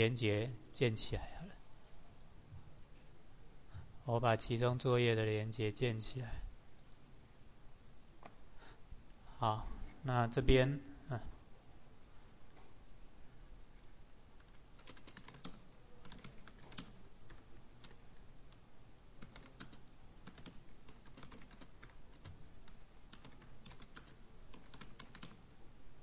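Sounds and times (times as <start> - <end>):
keyboard typing: 14.4 - 18.6, 19.2 - 25.4.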